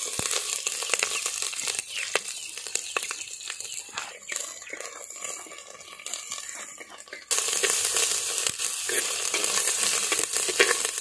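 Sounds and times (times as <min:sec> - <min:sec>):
oil sizzling in a pot: 0:00.0 - 0:11.0
metal spoon stirring and scraping: 0:03.1 - 0:11.0.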